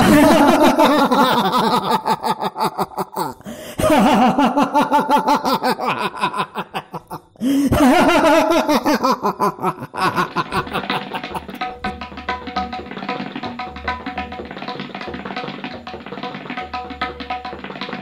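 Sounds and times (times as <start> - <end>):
man laughing theatrically: 0.0 - 11.8.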